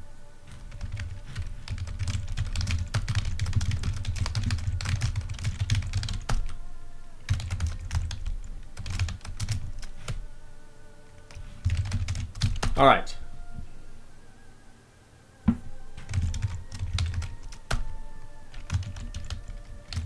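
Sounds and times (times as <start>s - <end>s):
typing on computer keyboard: 0.5s - 6.6s, 7.3s - 10.2s, 11.3s - 12.8s, 16.0s - 17.9s, 18.5s - 20.0s.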